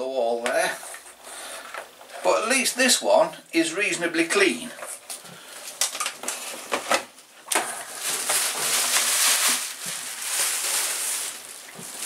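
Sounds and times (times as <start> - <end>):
bubble wrap crinkling: 7.4 - 12.0.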